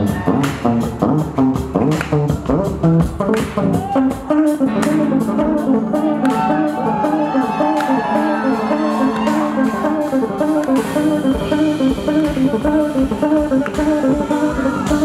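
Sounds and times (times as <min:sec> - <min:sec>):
drum kit steady beat: 0:00.0 - 0:15.0
electric bass solo: 0:00.0 - 0:15.0.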